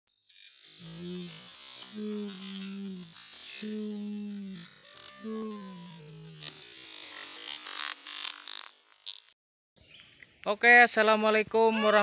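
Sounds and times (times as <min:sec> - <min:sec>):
steady hiss: 0:00.7 - 0:09.2
synthesizer held notes: 0:00.8 - 0:06.6.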